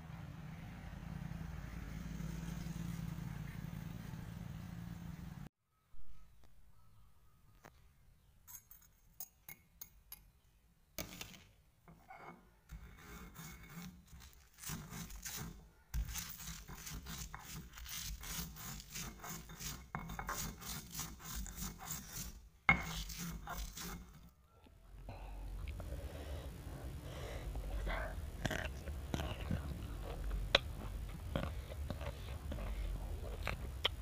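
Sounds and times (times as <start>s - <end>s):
chilies ground by hand: 12.6s - 24.3s, 28.4s - 34.0s.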